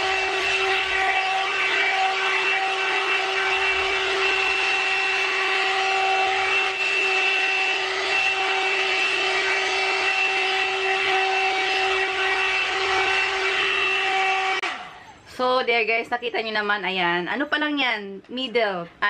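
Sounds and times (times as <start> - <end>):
hair dryer motor whine: 0.0 - 15.0.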